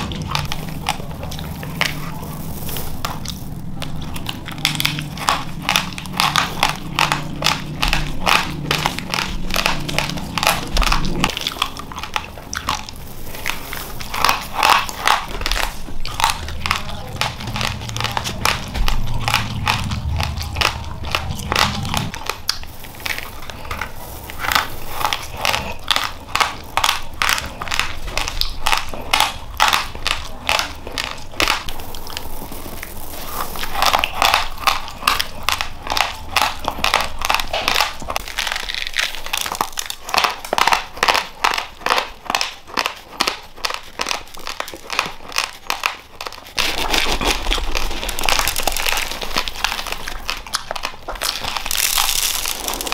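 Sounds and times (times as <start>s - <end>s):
chewing raw rice crunching: 0.0s - 52.9s
hand rustling rice in plastic bag: 1.8s - 3.7s, 22.6s - 25.3s, 31.7s - 34.6s.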